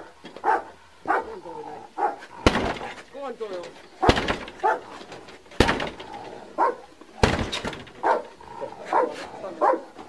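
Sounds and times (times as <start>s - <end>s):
dog barking: 0.0s - 1.4s, 2.0s - 2.3s, 4.0s - 5.0s, 6.6s - 6.9s, 8.0s - 10.0s
heavy blows on a door: 4.0s - 4.8s, 5.6s - 8.4s.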